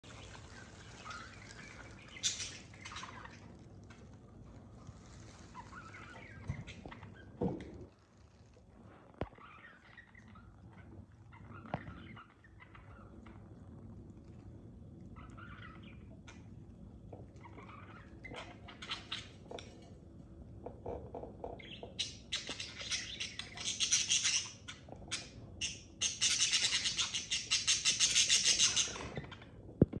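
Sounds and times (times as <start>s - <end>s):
budgerigars chirping and chattering: 0.2s - 3.4s, 17.4s - 19.5s, 21.6s - 29.4s.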